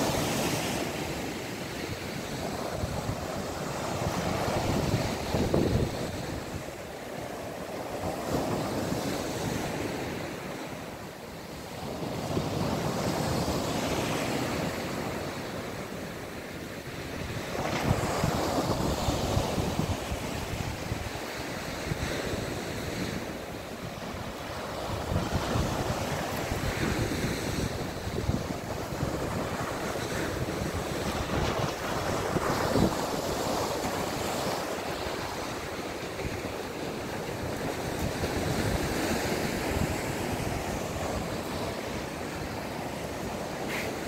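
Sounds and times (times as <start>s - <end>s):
waves breaking on beach: 0.0s - 44.0s
wind buffeting microphone: 2.0s - 6.9s, 17.0s - 44.0s.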